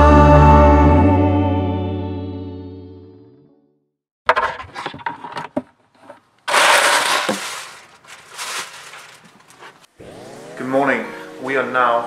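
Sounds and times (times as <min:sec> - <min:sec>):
loud rustle: 0:06.5 - 0:09.9.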